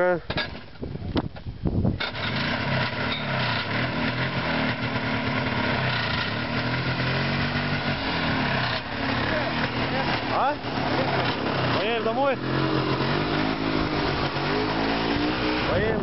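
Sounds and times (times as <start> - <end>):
snowmobile engine idling fast: 3.9 - 14.2.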